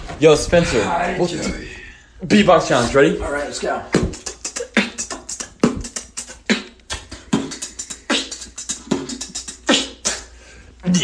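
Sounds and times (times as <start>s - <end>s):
person beatboxing: 3.8s - 11.0s.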